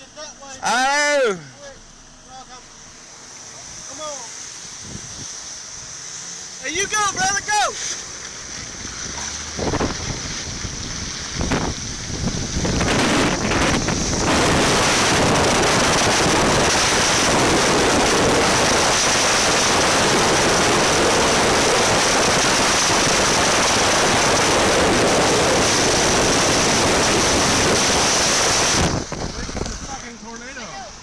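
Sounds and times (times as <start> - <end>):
rain: 2.8 - 31.0
storm wind buffeting microphone: 9.5 - 30.0.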